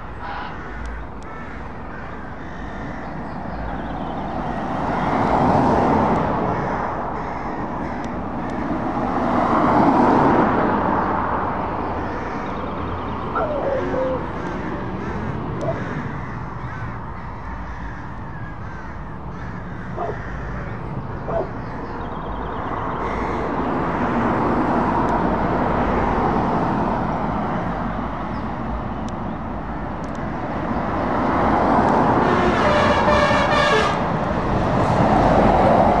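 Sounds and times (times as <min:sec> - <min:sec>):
car passing: 0:00.0 - 0:36.0
truck driving past: 0:29.8 - 0:36.0.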